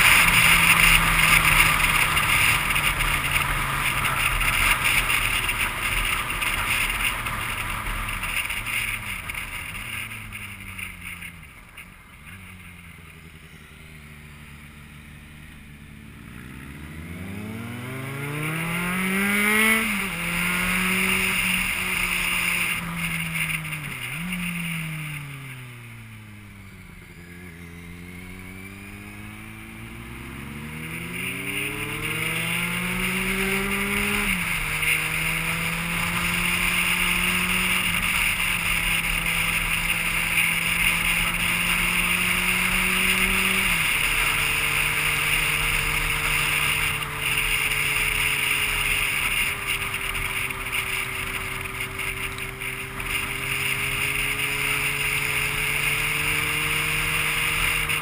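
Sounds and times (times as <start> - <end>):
vehicle engine accelerating: 0.0 - 58.0.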